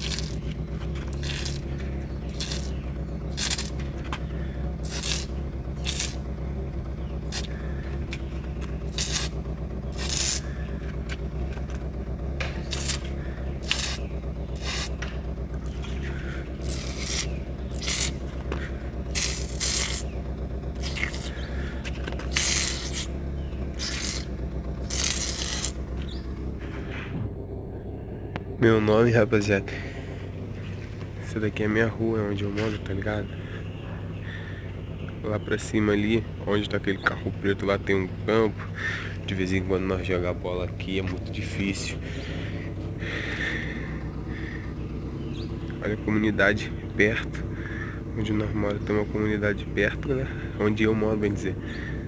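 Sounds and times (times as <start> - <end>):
steady low hum: 0.0 - 52.0
aerosol spray hissing: 8.9 - 9.4, 13.6 - 14.0, 14.6 - 14.9.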